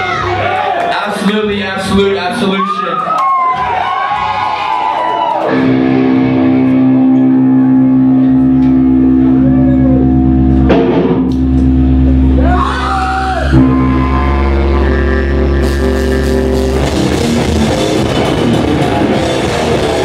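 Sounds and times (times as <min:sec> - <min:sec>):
electric guitars ringing chords: 0:05.4 - 0:20.0
bass note: 0:05.5 - 0:20.0.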